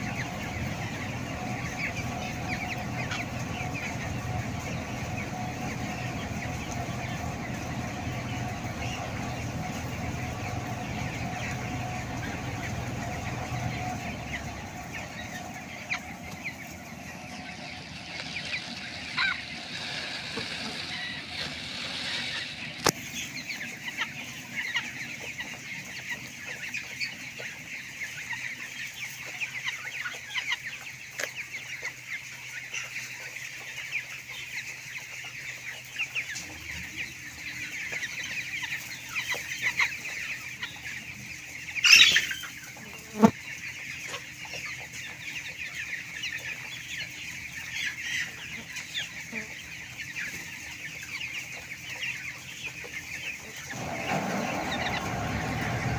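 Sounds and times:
chicken squawk: 0:00.0 - 0:24.9, 0:41.8 - 0:43.3, 0:52.9 - 0:55.9
chickens peeping and clucking: 0:00.0 - 0:55.9.

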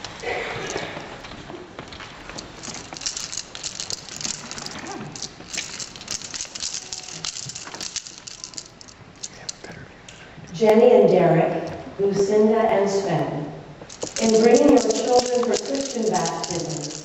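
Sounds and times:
close rustling and crinkling: 0:00.0 - 0:09.8, 0:13.8 - 0:17.0
small irregular clicks: 0:02.2 - 0:10.2, 0:13.8 - 0:17.0.

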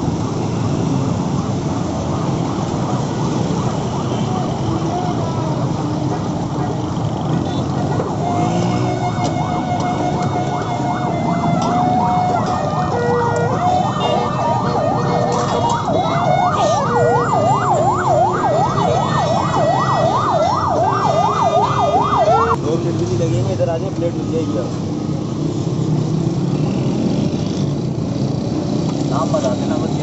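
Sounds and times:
emergency siren wailing: 0:00.0 - 0:22.6
road traffic hum: 0:00.0 - 0:30.0.

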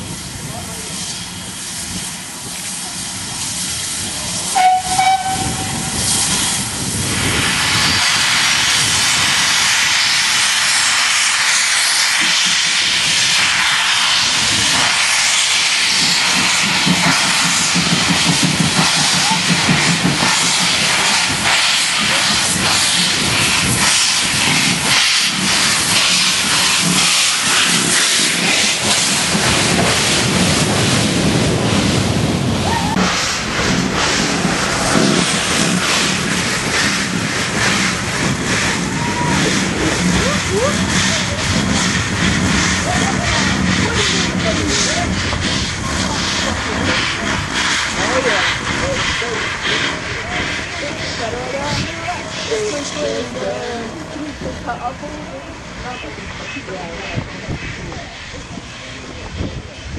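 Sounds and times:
steam hissing: 0:00.0 - 0:59.9
steam locomotive whistle toot: 0:04.5 - 0:06.1.

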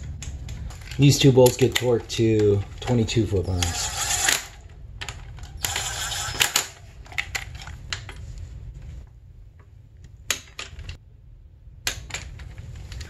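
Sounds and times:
cordless ratchet running: 0:03.5 - 0:04.6, 0:05.6 - 0:06.8.

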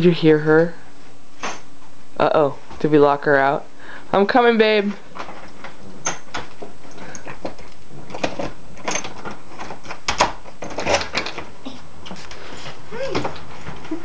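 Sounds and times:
household clicks and knocks: 0:05.1 - 0:11.5.

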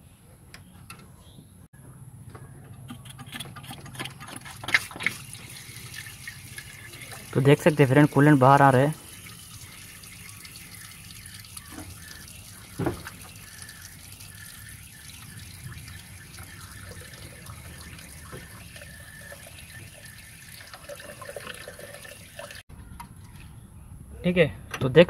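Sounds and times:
coolant stream splashing into container: 0:04.8 - 0:22.6
brief thump: 0:12.8 - 0:13.2.

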